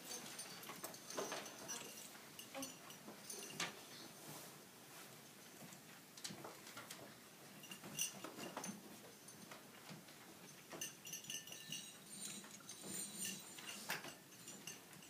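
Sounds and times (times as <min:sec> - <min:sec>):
clinking and rattling: 0:00.0 - 0:03.8, 0:07.6 - 0:15.0.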